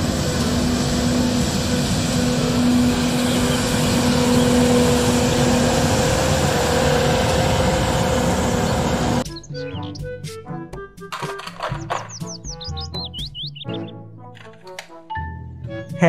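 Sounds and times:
street sweeper truck running: 0:00.0 - 0:09.8.

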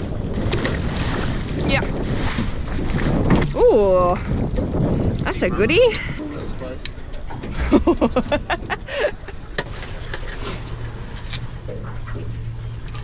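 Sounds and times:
low steady hum: 0:03.4 - 0:13.0.

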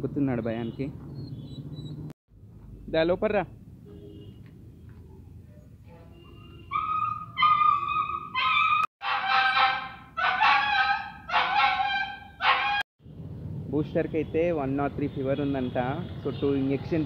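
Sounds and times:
dog whining: 0:06.2 - 0:08.9.

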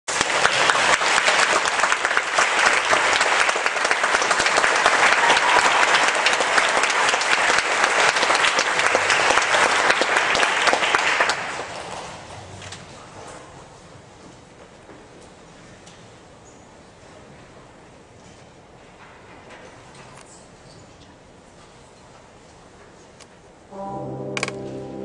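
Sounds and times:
audience applauding: 0:00.1 - 0:12.3.

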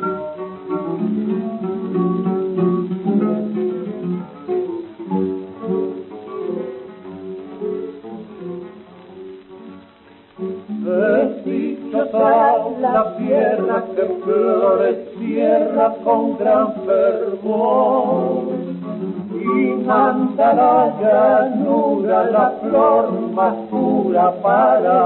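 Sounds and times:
acoustic guitars playing folk music: 0:00.0 - 0:25.0
person singing: 0:10.7 - 0:25.0.

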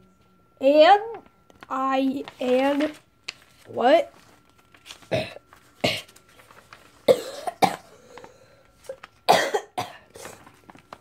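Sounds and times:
person coughing: 0:05.1 - 0:06.2, 0:07.0 - 0:08.0, 0:09.3 - 0:10.4.

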